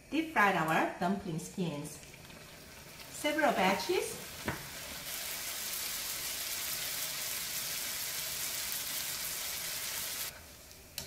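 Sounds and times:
dough sizzling in hot oil: 0:01.5 - 0:11.0.

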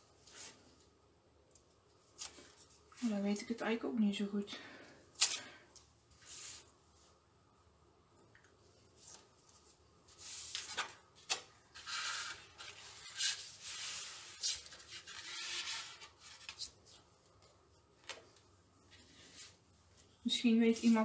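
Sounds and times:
paper rustling swishes: 0:18.9 - 0:21.0.

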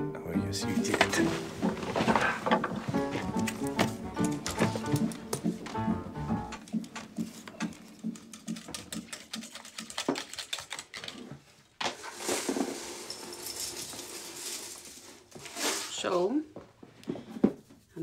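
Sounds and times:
papers rustling: 0:00.7 - 0:05.8
small objects clicking and tapping: 0:06.5 - 0:11.3.

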